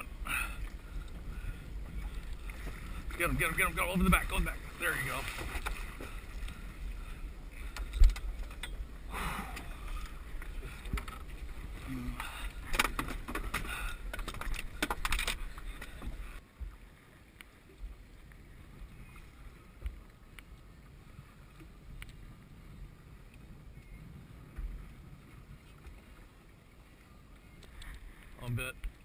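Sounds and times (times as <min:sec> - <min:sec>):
faint wind and water: 0:00.0 - 0:29.0
click: 0:22.0 - 0:22.2.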